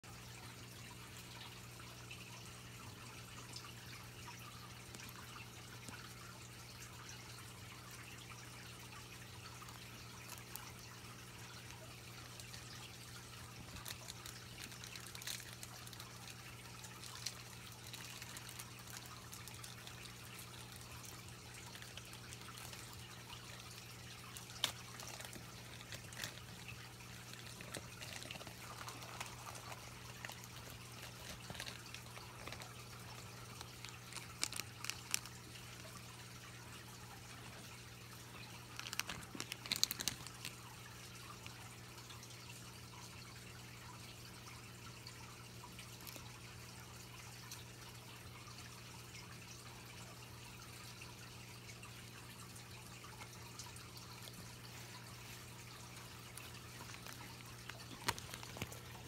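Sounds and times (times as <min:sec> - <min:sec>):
small clicks: 0:21.7 - 0:36.0, 0:38.7 - 0:40.6, 0:56.3 - 0:59.0.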